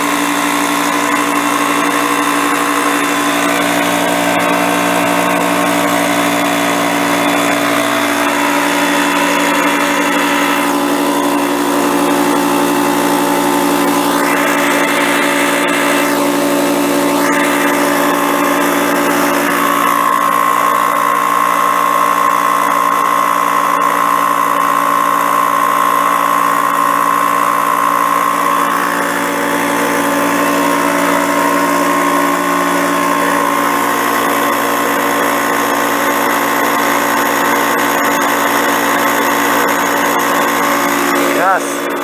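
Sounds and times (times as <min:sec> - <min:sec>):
air compressor droning: 0:00.0 - 0:42.0
high whine: 0:00.0 - 0:42.0.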